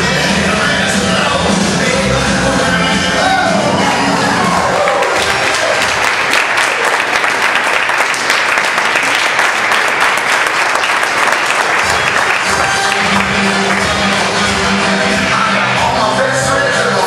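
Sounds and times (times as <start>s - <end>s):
music: 0.0s - 17.0s
audience applauding: 3.8s - 16.0s.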